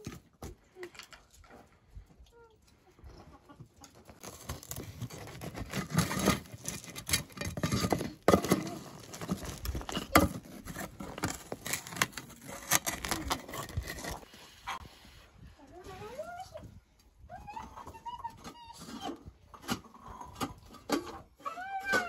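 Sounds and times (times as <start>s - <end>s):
wooden spatula scraping ash on metal: 5.0s - 15.0s.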